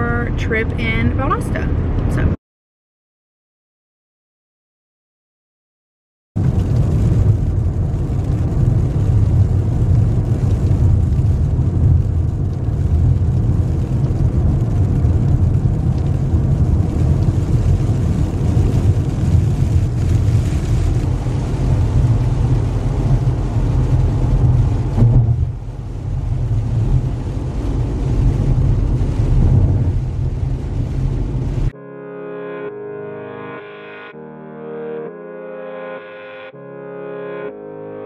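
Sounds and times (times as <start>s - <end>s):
car engine and tyres rumbling: 0.0s - 2.4s, 6.4s - 31.8s
tyres hissing on wet road: 6.6s - 31.7s.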